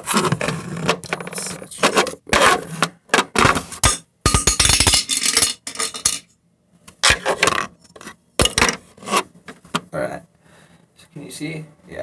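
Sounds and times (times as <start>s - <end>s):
objects knocking and clinking: 3.2s - 6.3s.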